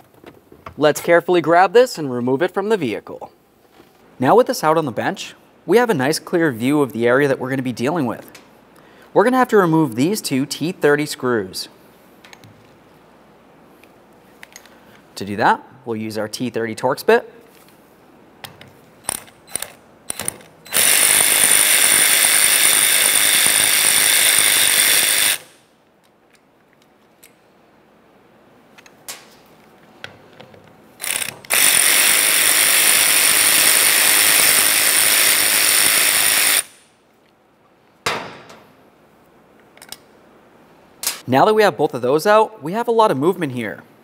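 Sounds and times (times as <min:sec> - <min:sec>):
power driver running: 0:19.1 - 0:25.6, 0:31.0 - 0:36.8.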